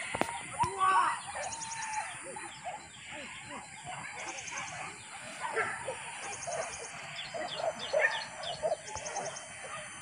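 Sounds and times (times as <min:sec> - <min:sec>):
birds chirping: 0:00.0 - 0:10.0
insects buzzing: 0:00.0 - 0:10.0
dogs yelping and baying: 0:01.2 - 0:10.0.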